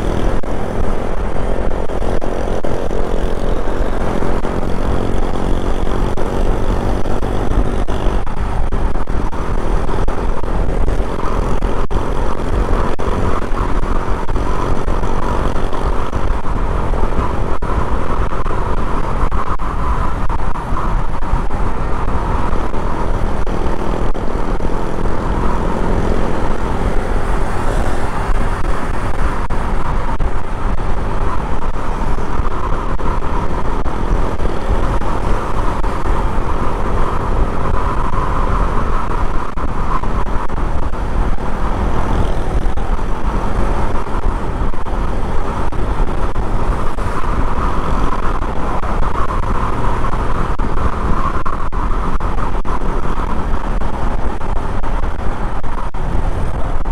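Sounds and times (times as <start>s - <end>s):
motorcycle engine running: 0.0s - 56.9s
wind and road noise: 0.0s - 56.9s.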